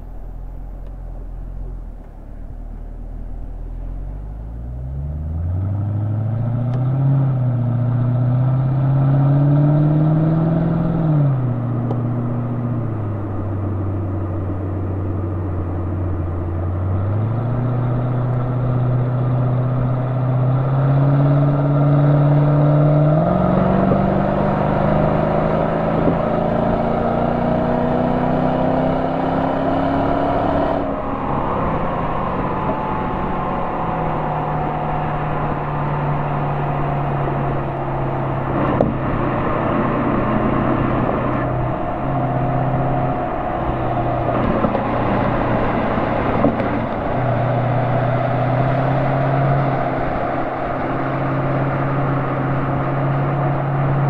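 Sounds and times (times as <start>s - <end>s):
car exhaust note: 0.0s - 54.0s.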